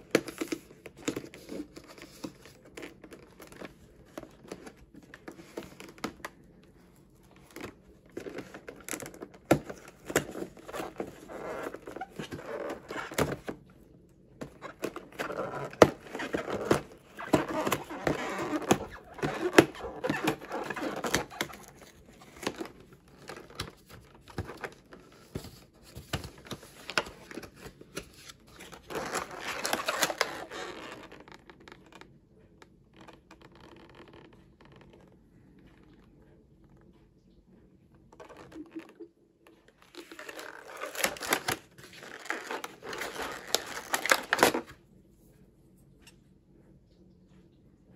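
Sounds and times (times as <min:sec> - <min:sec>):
cardboard ripping and crinkling: 0:07.3 - 0:13.6, 0:14.4 - 0:32.0, 0:39.8 - 0:44.8.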